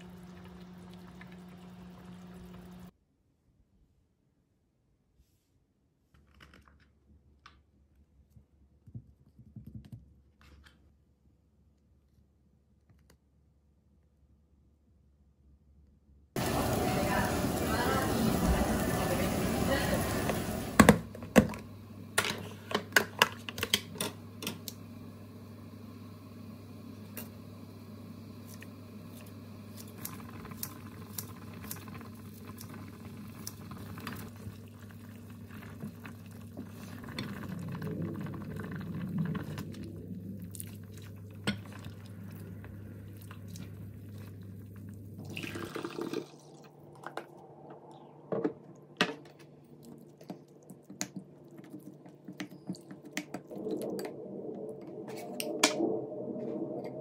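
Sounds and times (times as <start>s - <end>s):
steady low hum: 33.0s - 45.5s
liquid splashing: 34.3s - 47.4s.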